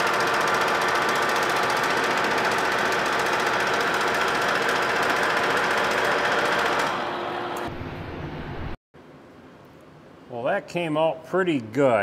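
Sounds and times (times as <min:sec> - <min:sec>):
cutter chattering on iron: 0:00.0 - 0:06.9.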